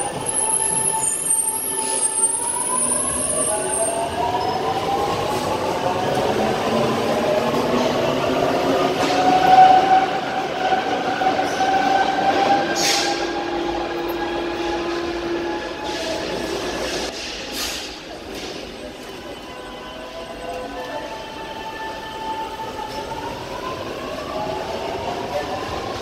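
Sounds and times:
train wheels clicking on rails: 0:11.3 - 0:19.2.

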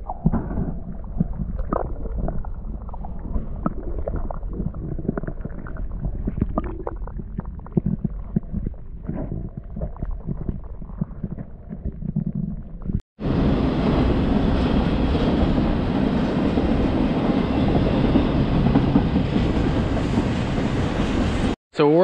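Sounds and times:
muffled underwater gurgle: 0:00.0 - 0:13.0
freight train wheels rumbling on rails: 0:13.2 - 0:21.5.

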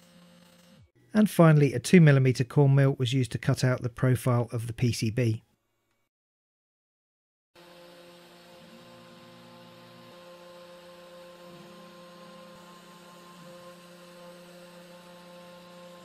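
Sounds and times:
stepper motor tones: 0:07.6 - 0:16.0.

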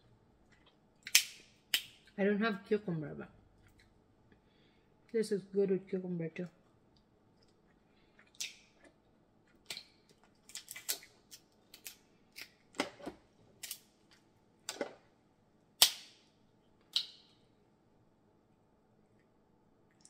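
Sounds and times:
crab shell cracking: 0:01.0 - 0:02.1, 0:09.5 - 0:12.6, 0:13.6 - 0:13.9.

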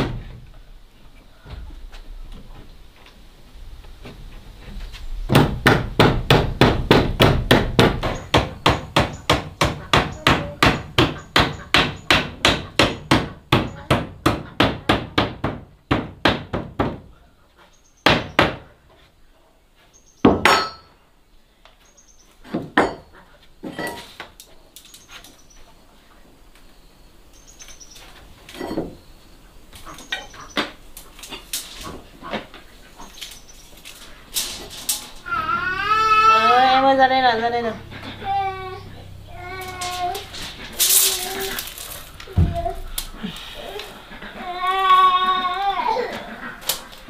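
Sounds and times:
hammer striking wood: 0:05.3 - 0:17.1, 0:18.0 - 0:18.6, 0:20.2 - 0:20.9.

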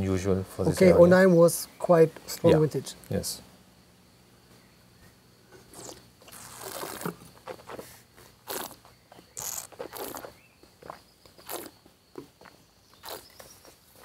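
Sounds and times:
wine slurping and swishing: 0:05.8 - 0:07.2.

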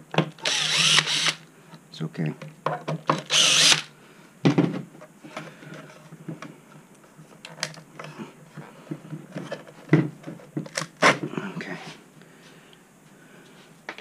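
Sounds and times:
cordless drill running: 0:00.4 - 0:01.4, 0:03.3 - 0:03.9
knocks and clicks of handled parts: 0:02.4 - 0:03.8.

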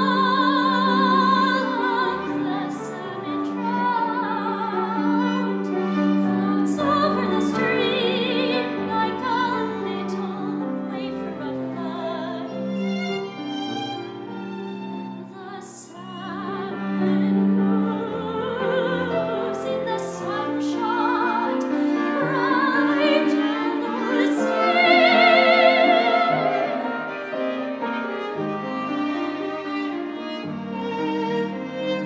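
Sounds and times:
soprano singing with vibrato: 0:00.0 - 0:13.1, 0:15.2 - 0:27.4
cello: 0:00.0 - 0:32.0
piano: 0:00.0 - 0:32.0
violin: 0:00.0 - 0:32.0.

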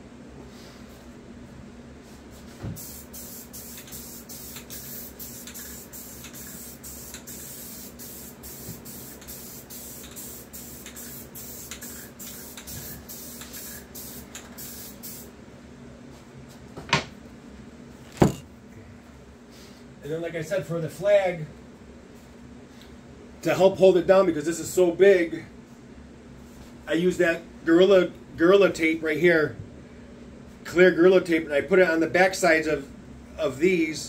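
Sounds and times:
aerosol spray can hissing: 0:02.8 - 0:15.3.

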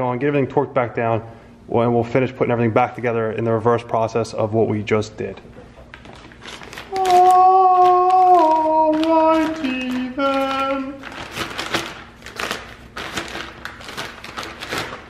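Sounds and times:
plastic bag crinkling: 0:05.9 - 0:15.0.

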